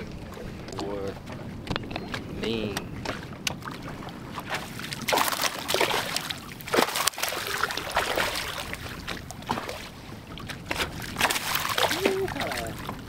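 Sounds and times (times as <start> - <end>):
fish splashing in water: 4.1 - 10.0, 10.6 - 13.0.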